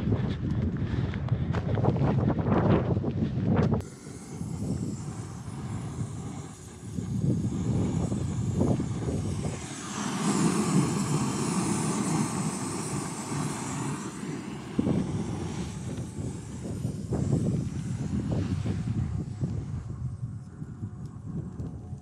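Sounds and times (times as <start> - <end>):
wind buffeting microphone: 0.0 - 22.0
gas stove burner hissing: 3.8 - 21.2.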